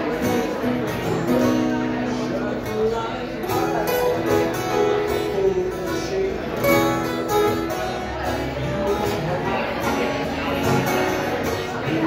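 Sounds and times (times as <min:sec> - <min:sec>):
bluegrass band playing: 0:00.0 - 0:12.0
banjo rolling: 0:03.5 - 0:12.0.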